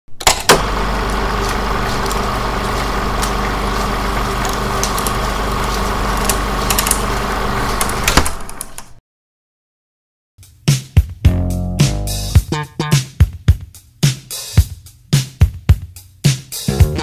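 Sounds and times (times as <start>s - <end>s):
low mechanical hum: 0.1s - 9.0s
scattered clicks: 4.3s - 7.1s.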